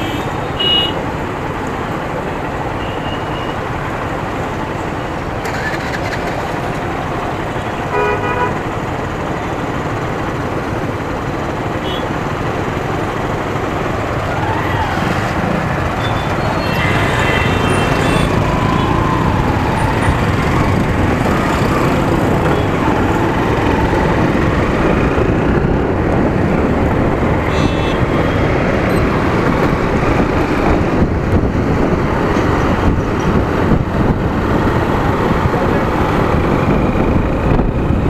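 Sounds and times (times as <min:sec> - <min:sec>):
road traffic: 0:00.0 - 0:38.0
motorcycle engine: 0:05.3 - 0:08.3
wind over microphone: 0:18.4 - 0:38.0.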